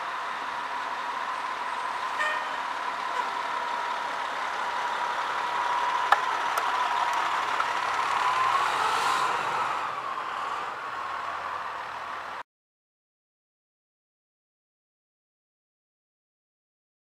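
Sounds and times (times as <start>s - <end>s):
diesel truck engine driving past: 0.0s - 12.4s.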